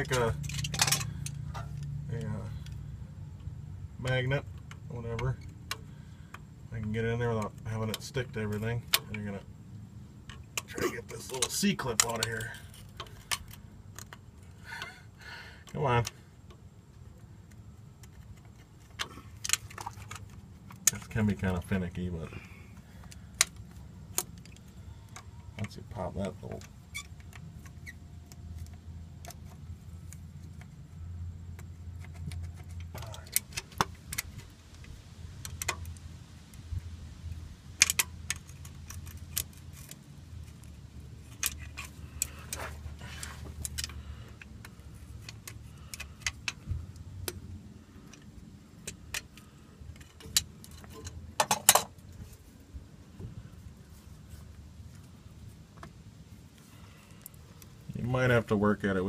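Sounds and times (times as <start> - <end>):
metal tools clinking and scraping: 0.0 - 1.9, 37.8 - 46.6, 48.0 - 52.4
low steady hum: 0.0 - 59.0.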